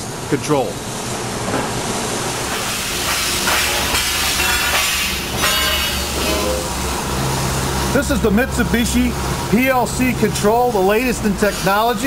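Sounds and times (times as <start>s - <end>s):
surface grinder running: 1.9s - 8.0s.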